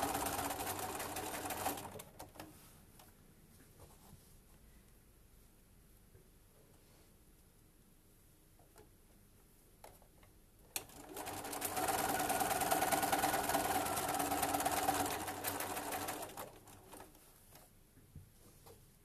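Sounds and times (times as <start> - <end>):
sewing machine stitching: 0.0 - 2.1, 10.8 - 17.2.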